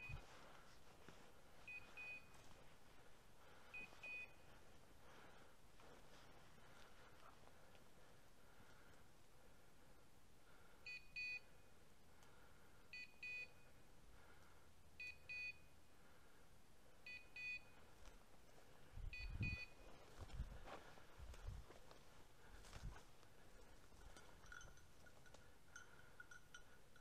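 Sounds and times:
faint high double beep: 0.0s - 0.2s, 3.8s - 4.5s, 19.1s - 19.8s.

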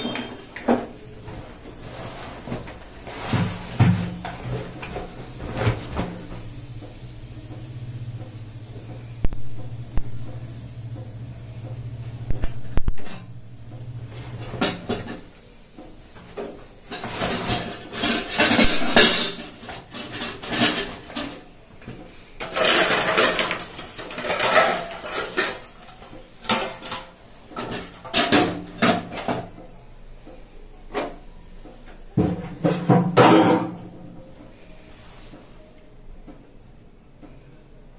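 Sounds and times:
steel cookware clanking: 16.9s - 21.4s, 22.4s - 29.5s.

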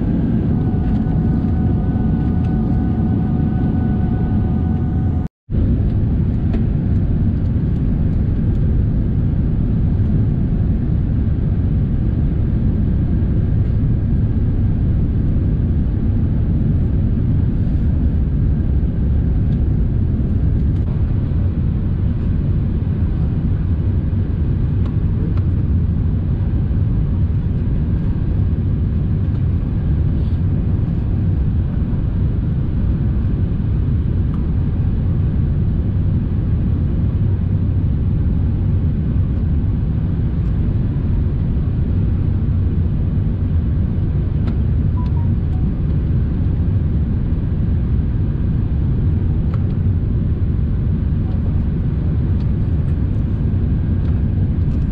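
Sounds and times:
aircraft cabin engine rumble: 0.0s - 54.9s.

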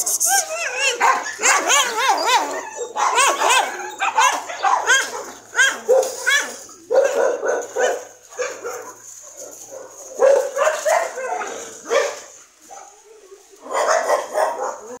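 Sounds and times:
dogs barking: 0.3s - 15.0s.

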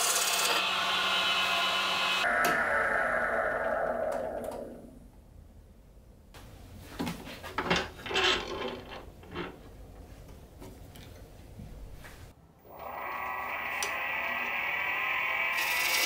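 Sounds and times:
wood lathe running: 0.0s - 4.7s, 12.6s - 16.0s.

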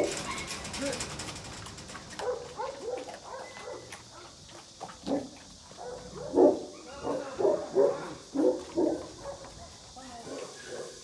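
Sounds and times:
dogs barking: 2.2s - 4.4s, 5.0s - 9.6s, 10.2s - 11.0s.

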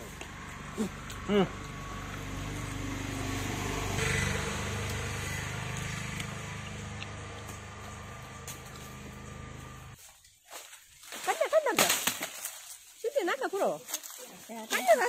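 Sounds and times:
engine droning: 0.0s - 10.0s.

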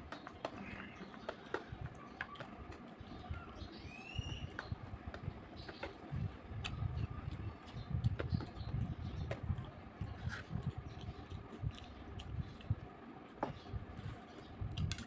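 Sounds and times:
man chewing food: 4.5s - 15.0s.

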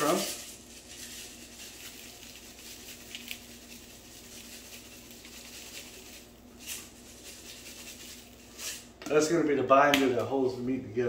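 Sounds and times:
breadcrumbs pattering: 0.0s - 8.8s.

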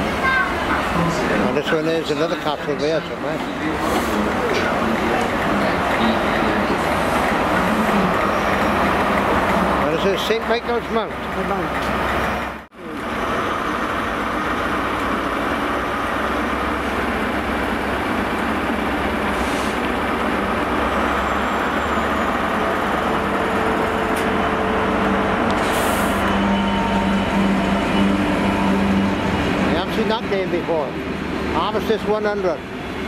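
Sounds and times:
diesel locomotive engine: 0.0s - 33.0s
freight train passing: 0.0s - 33.0s.

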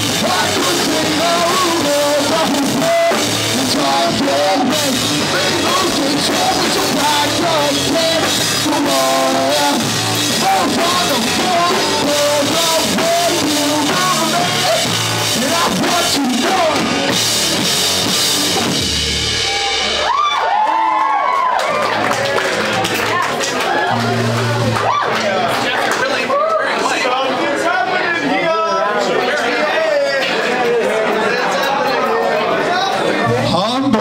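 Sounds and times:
sung vocals: 0.0s - 17.3s
live rock band playing: 0.0s - 25.6s
crowd shouting and cheering: 0.0s - 34.0s.

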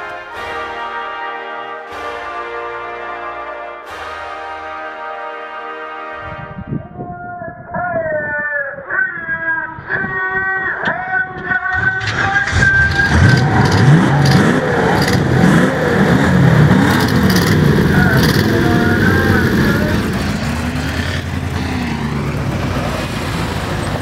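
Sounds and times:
race car engines revving: 10.8s - 24.0s.

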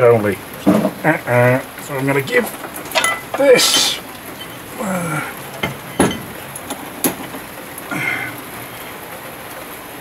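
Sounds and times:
metal knocks and clinks: 2.4s - 4.7s, 5.5s - 7.5s.

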